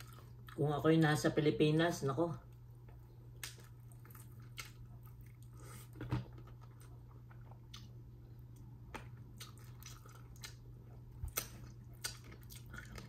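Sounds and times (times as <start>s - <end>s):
steady low hum: 0.0s - 13.0s
chewing mouth sounds: 3.4s - 13.0s.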